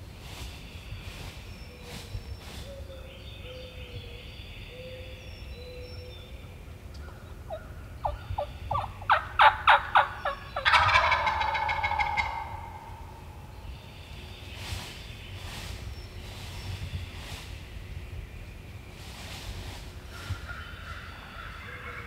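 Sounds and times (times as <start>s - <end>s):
turkey gobbling: 7.0s - 13.3s.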